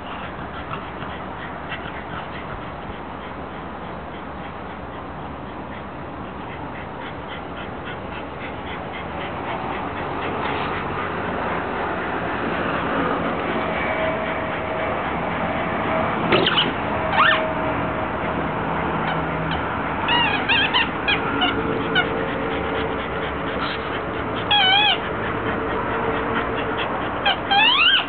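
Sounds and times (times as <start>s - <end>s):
squeaky rubber dog toy: 16.3s - 17.8s, 19.0s - 28.0s.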